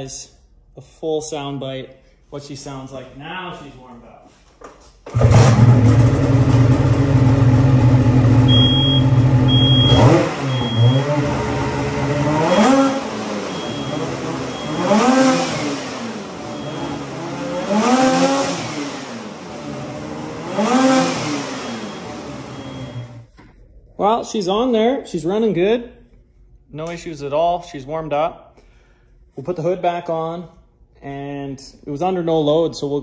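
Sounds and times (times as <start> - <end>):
snowmobile engine revving: 5.1 - 23.2
short high beep: 8.5 - 11.0, 12.4 - 15.0, 16.4 - 17.1, 21.5 - 23.3.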